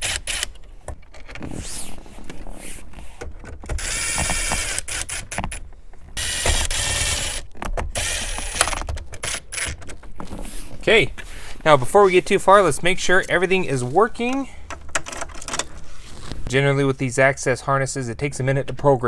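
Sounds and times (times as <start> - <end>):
impact driver driving screws: 0.0 - 0.6, 3.7 - 5.6, 6.2 - 9.8
clicks and rattles of handling: 0.4 - 6.2, 7.4 - 10.6, 14.2 - 16.4.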